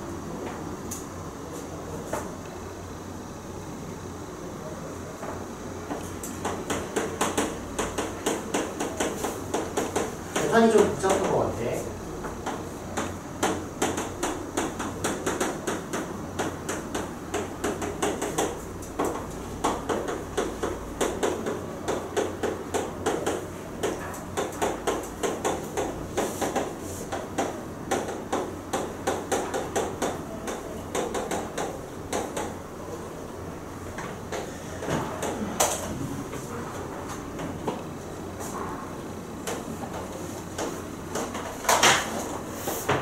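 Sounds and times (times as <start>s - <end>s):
chalk tapping on blackboard: 5.2s - 11.4s, 12.2s - 32.6s, 39.4s - 43.0s.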